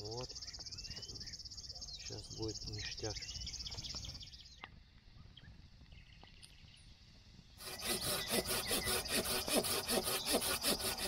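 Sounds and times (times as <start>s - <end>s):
hand saw cutting a log: 7.6s - 11.0s.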